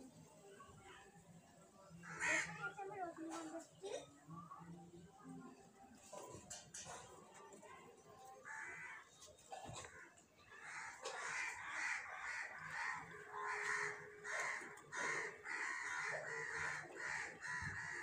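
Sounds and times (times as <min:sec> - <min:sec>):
crows cawing: 0:02.0 - 0:02.6, 0:08.4 - 0:09.1, 0:10.5 - 0:18.0.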